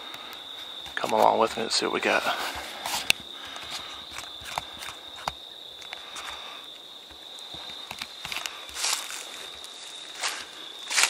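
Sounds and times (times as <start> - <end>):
footsteps in leaf litter: 8.4 - 11.0.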